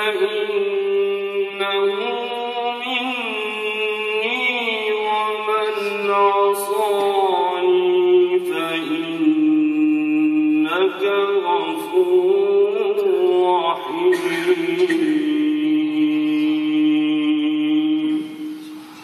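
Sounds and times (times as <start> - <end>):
man chanting melodic recitation: 0.0 - 18.9.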